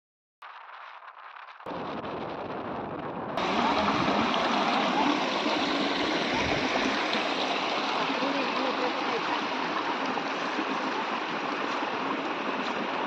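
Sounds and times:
stream splashing over rocks: 3.4 - 13.0.

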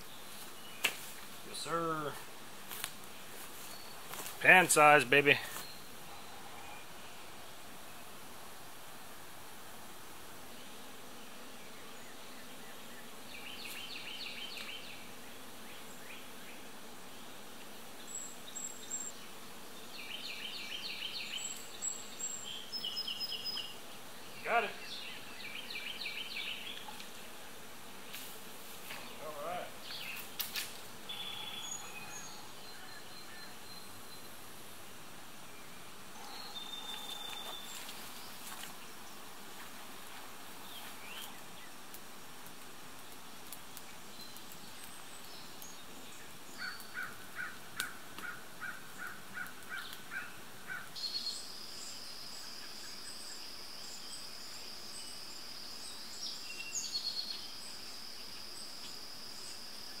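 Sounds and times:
high insect buzz: 0.0 - 60.0
bird chirps: 31.1 - 34.3, 36.2 - 37.8.

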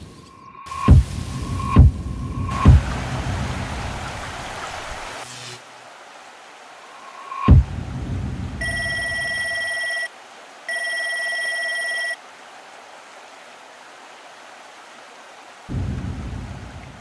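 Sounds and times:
steady hiss: 0.0 - 8.7
deep boom: 0.9 - 3.8, 7.5 - 8.6, 15.7 - 17.0
electronic ringing tones: 8.6 - 10.1, 10.7 - 12.2.

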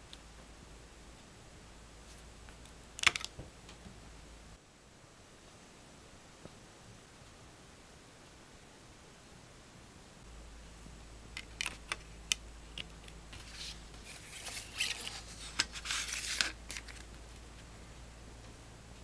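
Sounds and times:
paper booklet scraping on plastic: 13.3 - 17.1.

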